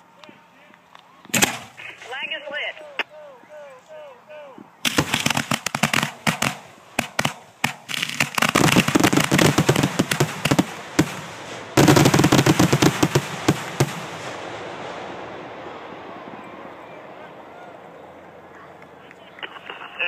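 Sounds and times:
fireworks bangs and crackle: 4.8s - 16.4s.

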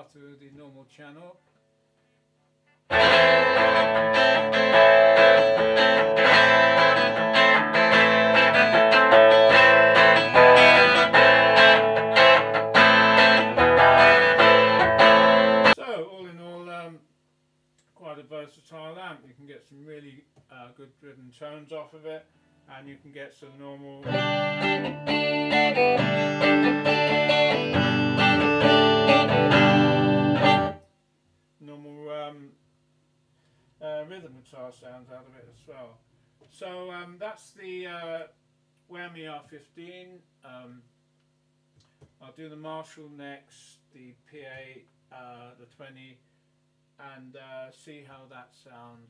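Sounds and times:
electric guitar strumming chords: 2.9s - 15.8s, 24.0s - 30.8s.

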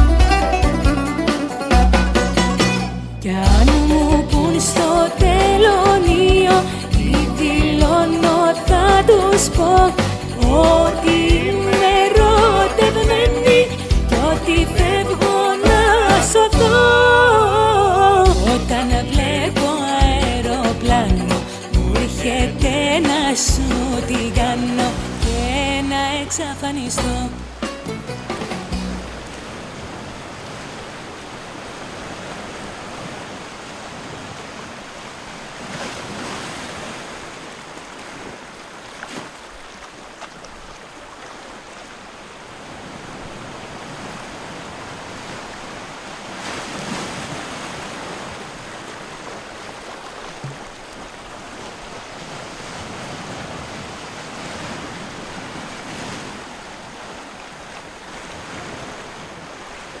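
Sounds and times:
waves breaking on a beach: 0.0s - 60.0s.

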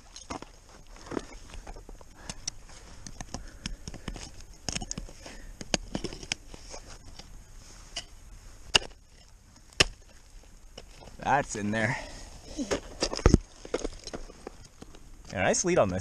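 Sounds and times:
ice axe strikes: 8.7s - 10.2s.

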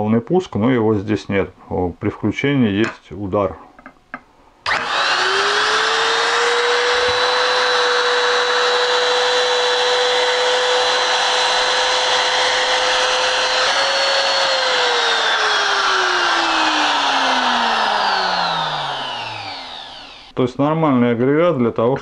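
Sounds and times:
router motor whine: 4.7s - 20.4s.

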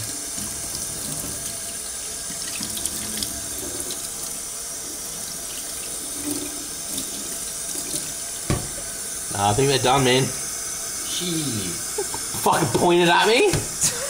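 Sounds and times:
tap water splashing on bottles: 8.4s - 8.8s.

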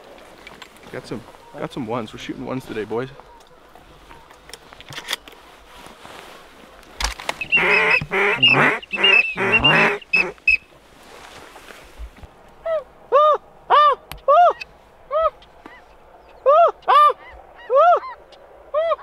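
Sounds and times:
goose honking: 7.4s - 10.6s.

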